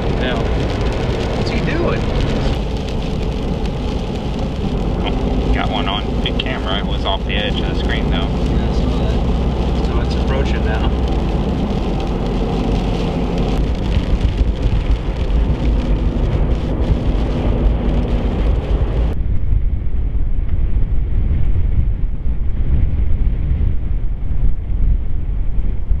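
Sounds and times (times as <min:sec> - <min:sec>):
car driving on slushy road: 0:00.0 - 0:19.2
wind buffeting microphone: 0:00.0 - 0:26.0.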